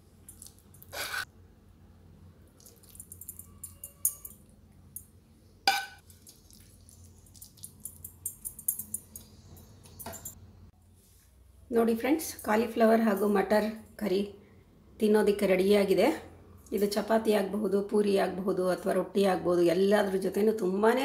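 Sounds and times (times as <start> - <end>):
spoon clinking and scraping: 2.6 - 5.1, 5.7 - 10.4.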